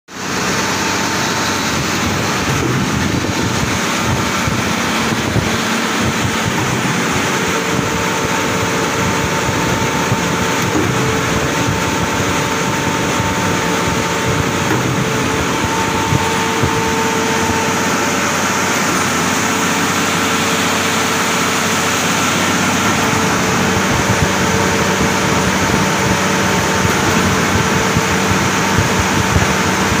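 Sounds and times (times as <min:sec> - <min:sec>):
concrete pump droning: 0:00.1 - 0:30.0.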